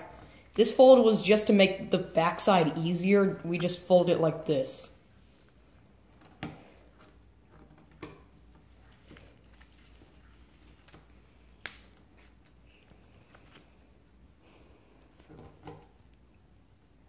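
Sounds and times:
paper rustling: 8.3s - 13.8s.

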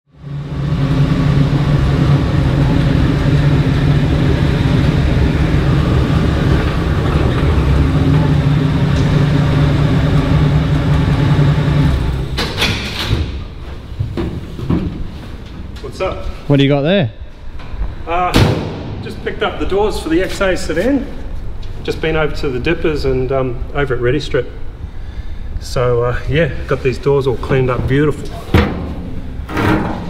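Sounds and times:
vehicle engine idling: 0.2s - 12.4s.

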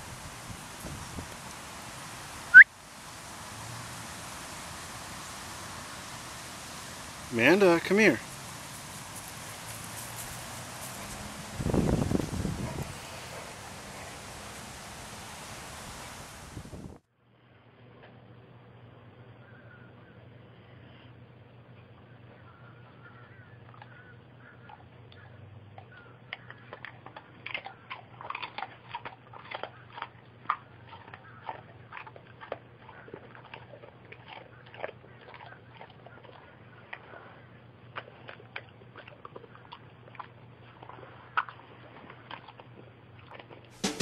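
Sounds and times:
faint low hum: 17.2s - 43.6s
dog chewing crunchy treat: 24.6s - 43.8s.

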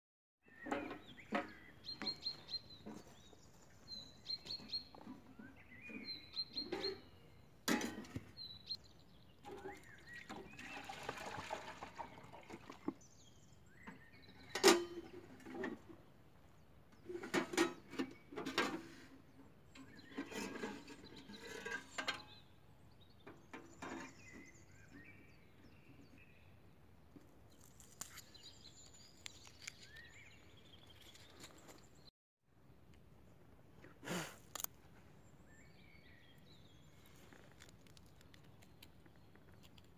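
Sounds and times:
small birds chirping: 0.4s - 10.8s, 19.2s - 32.1s, 35.0s - 39.9s.

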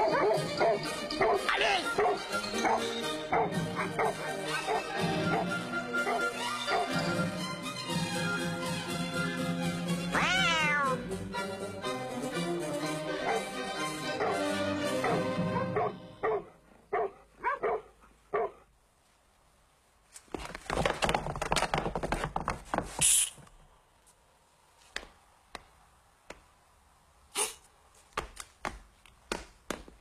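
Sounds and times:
dog barking: 0.0s - 6.9s, 13.2s - 13.5s, 14.2s - 14.4s, 15.0s - 18.6s.

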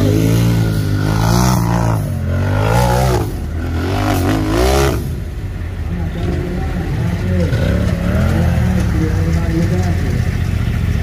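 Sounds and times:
engine revving hard: 0.0s - 5.2s.

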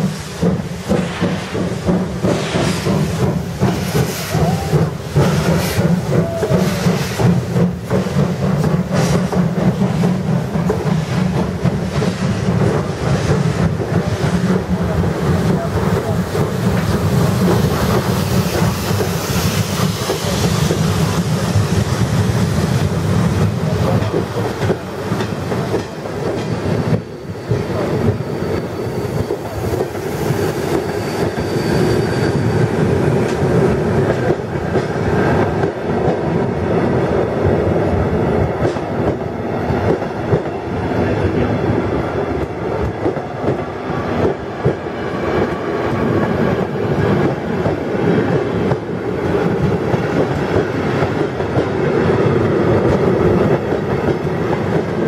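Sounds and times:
train wheels knocking over rail joints: 0.0s - 41.5s
high wheel squeal: 27.0s - 33.0s.

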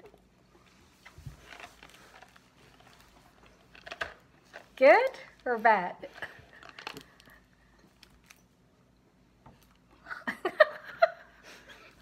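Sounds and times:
person laughing: 10.0s - 12.0s.

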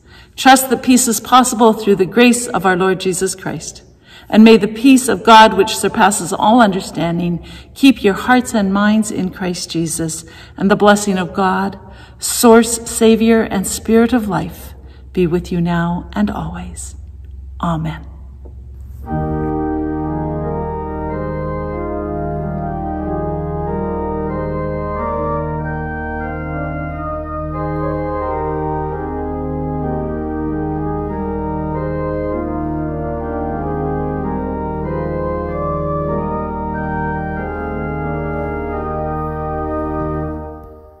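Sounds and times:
organ music: 4.4s - 10.2s, 18.5s - 41.0s.

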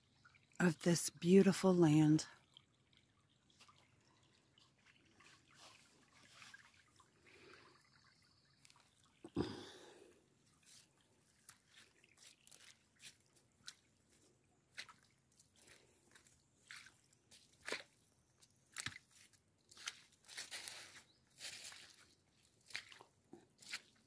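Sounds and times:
footsteps on wet leaves: 11.7s - 13.8s, 18.7s - 24.0s.

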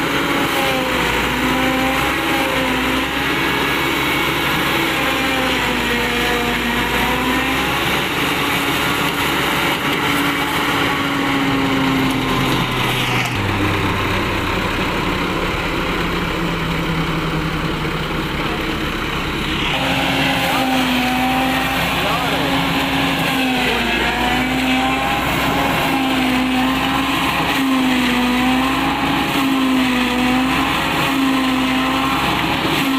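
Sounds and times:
tractor engine under load: 0.0s - 32.9s
forage chopper whirring and hissing: 18.3s - 32.9s.

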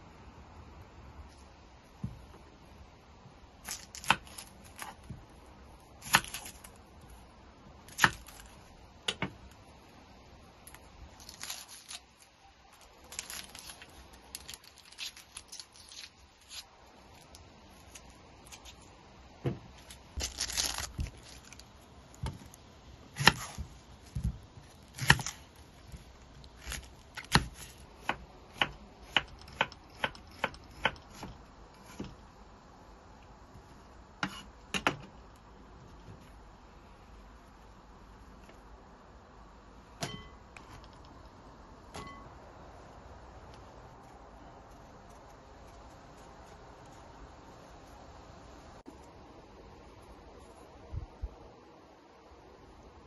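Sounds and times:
onion skins crackling and tearing: 3.6s - 7.2s, 7.8s - 8.8s, 10.6s - 19.1s, 19.7s - 32.0s.

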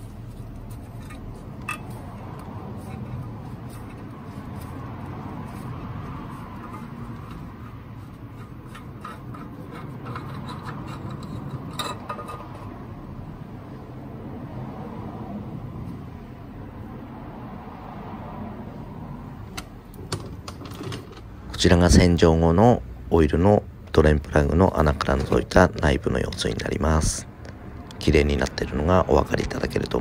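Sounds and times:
cap unscrewing scrapes and clicks: 5.6s - 12.8s.

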